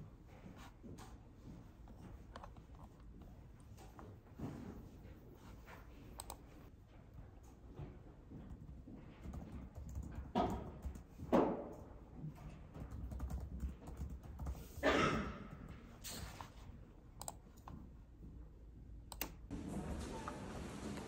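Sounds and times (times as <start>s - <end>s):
laptop keys clicking: 9.2s - 11.1s, 12.8s - 14.6s, 17.2s - 17.8s.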